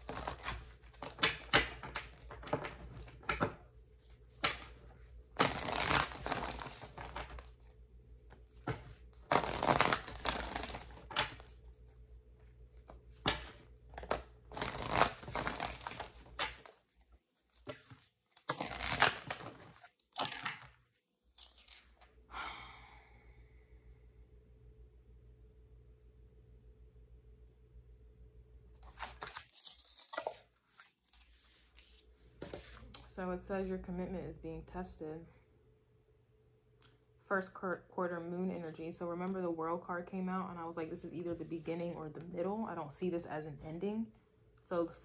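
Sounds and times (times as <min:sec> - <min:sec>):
cards being shuffled: 0:00.0 - 0:07.7, 0:08.3 - 0:11.7, 0:12.4 - 0:22.1, 0:28.8 - 0:33.1
faint steady hum: 0:00.0 - 0:45.0.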